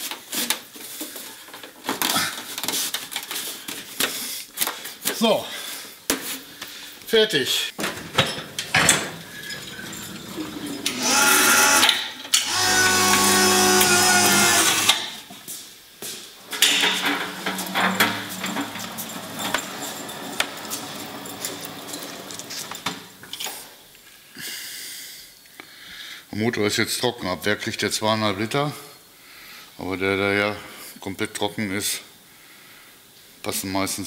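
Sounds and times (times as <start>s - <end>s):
clicks and knocks: 7.8s - 11.0s, 16.5s - 23.4s
small electric motor whining: 10.8s - 15.2s.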